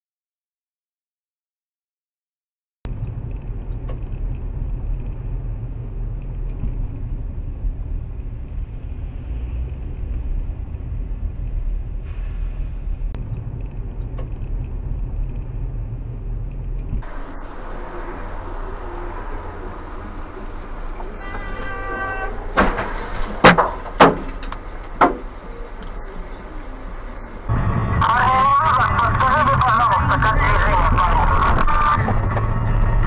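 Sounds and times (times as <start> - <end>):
car engine and tyres rumbling: 2.9 - 33.0
hissy traffic noise: 16.6 - 22.6.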